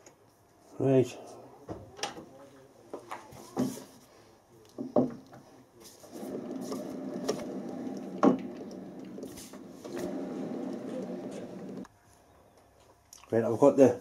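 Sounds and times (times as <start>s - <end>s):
lathe spindle humming: 6.2s - 11.9s.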